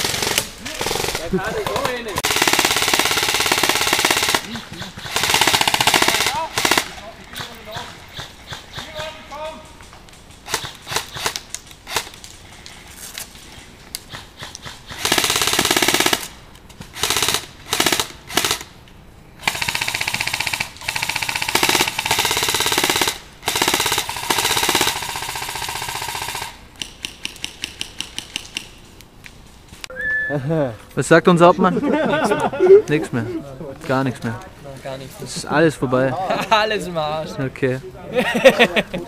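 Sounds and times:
airsoft full-auto bursts: 0.0s - 7.0s, 10.4s - 12.1s, 14.4s - 18.7s, 19.4s - 28.6s.

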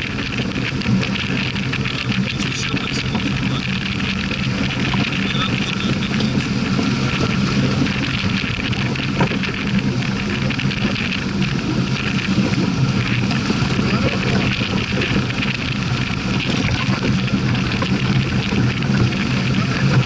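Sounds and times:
water rushing along hull: 0.0s - 20.0s
wind noise on microphone: 0.0s - 20.0s.

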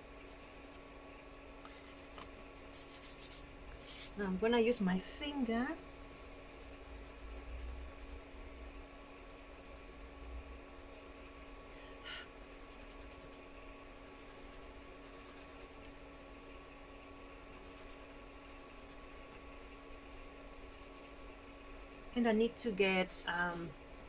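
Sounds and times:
faint steady hum: 0.0s - 24.0s
fingertips rubbing pastel on paper: 0.2s - 0.8s, 1.7s - 4.2s, 6.0s - 8.2s, 9.2s - 10.0s, 10.8s - 11.6s, 12.4s - 13.4s, 14.0s - 15.7s, 17.4s - 22.0s, 23.0s - 23.7s.

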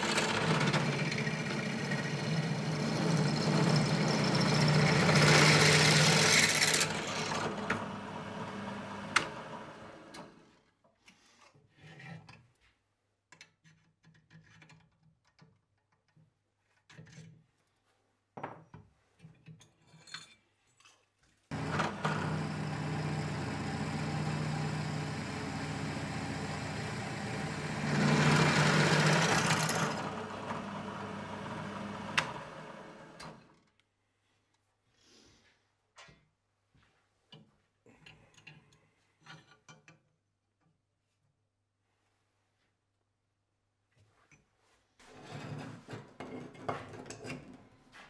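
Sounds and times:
drill bit cutting steel pipe: 0.0s - 10.0s, 21.5s - 33.4s
drill press motor running: 0.0s - 10.4s, 21.5s - 33.5s.

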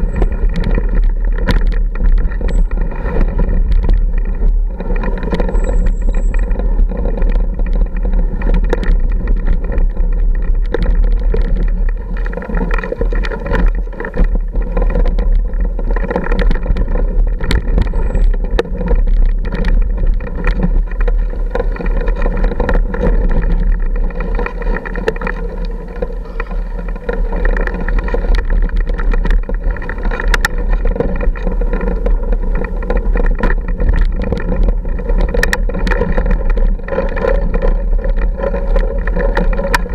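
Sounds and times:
clicks and knocks over rocks: 0.0s - 39.9s
motorcycle engine running: 0.0s - 39.9s.

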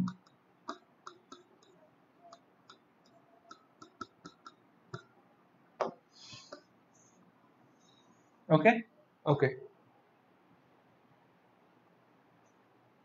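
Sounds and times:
stylus tapping on touchscreen: 0.0s - 5.1s.

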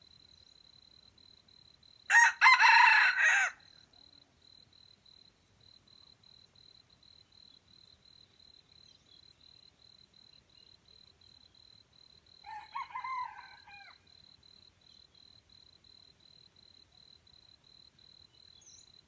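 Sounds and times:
faint pulsing insect call: 0.0s - 19.0s
rooster crowing: 2.1s - 3.7s, 12.4s - 14.0s.

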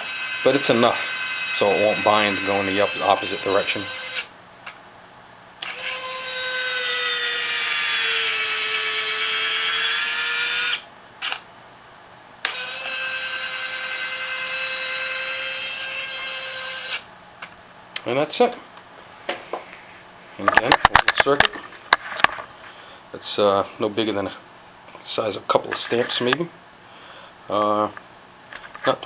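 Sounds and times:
electric gear motor whining: 0.0s - 4.3s, 5.6s - 11.4s, 12.4s - 17.0s.

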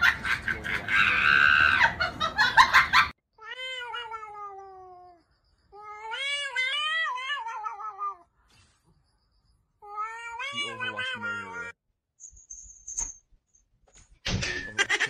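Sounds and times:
cat yowling: 3.4s - 5.2s, 5.8s - 8.3s, 9.8s - 11.8s.

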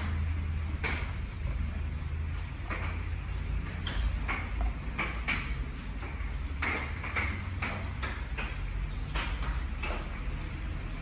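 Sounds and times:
low steady hum: 0.0s - 11.0s
rustling and scraping of plastic: 0.4s - 8.0s.

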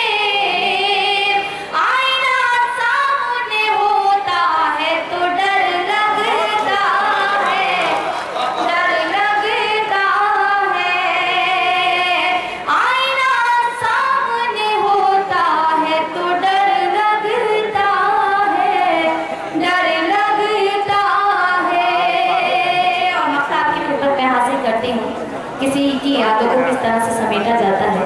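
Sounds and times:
woman singing unaccompanied: 0.0s - 7.9s, 8.6s - 25.0s.

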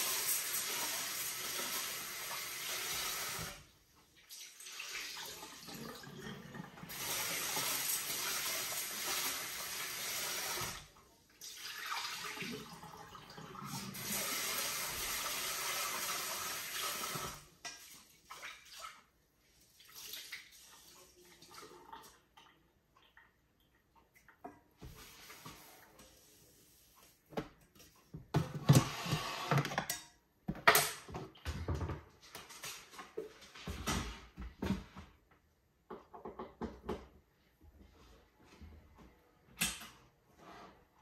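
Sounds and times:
water running from tap: 0.0s - 3.7s, 4.3s - 18.8s.

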